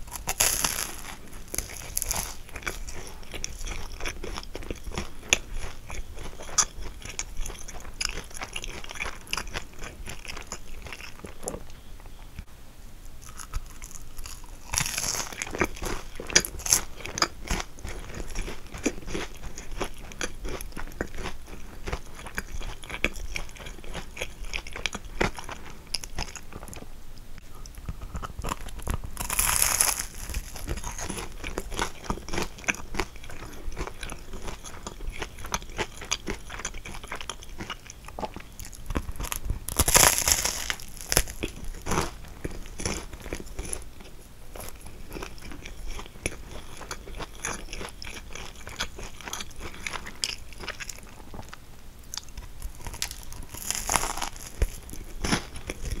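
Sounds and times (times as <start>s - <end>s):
crisp pastry crunching: 0.0s - 11.9s, 13.2s - 26.9s, 27.5s - 56.0s.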